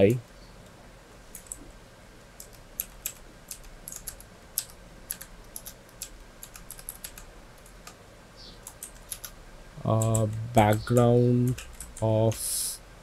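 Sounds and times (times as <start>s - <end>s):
computer keyboard typing: 1.3s - 1.6s, 2.4s - 8.0s, 8.6s - 12.4s.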